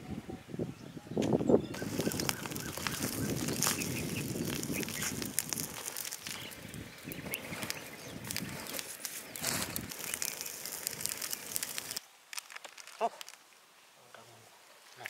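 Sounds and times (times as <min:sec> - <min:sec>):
duck flapping and calling: 0:01.8 - 0:12.0.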